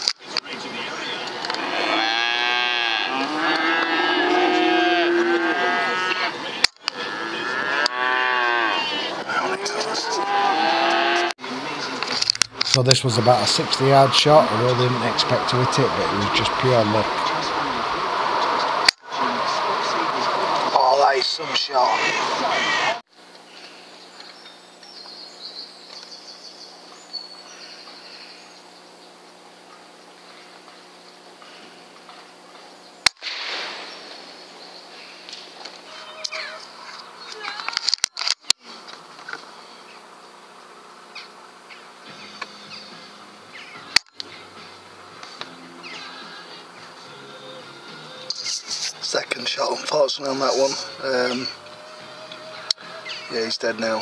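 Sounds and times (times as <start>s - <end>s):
cattle mooing: 1.6s - 11.3s
birds chirping: 12.7s - 18.8s, 20.6s - 31.8s, 41.1s - 54.0s.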